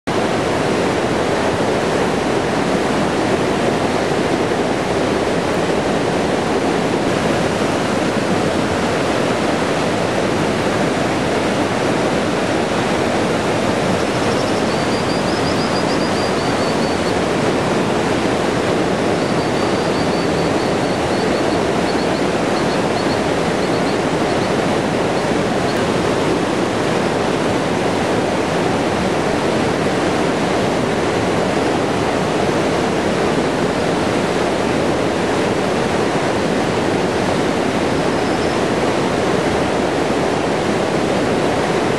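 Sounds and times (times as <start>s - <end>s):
river rushing: 0.1s - 41.9s
faint high bird twittering: 14.2s - 17.2s, 19.2s - 24.6s, 38.1s - 38.6s.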